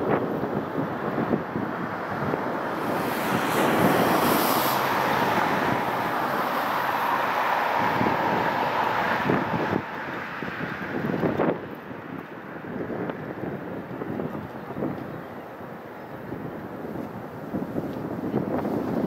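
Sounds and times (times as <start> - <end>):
car driving past: 1.7 - 11.0.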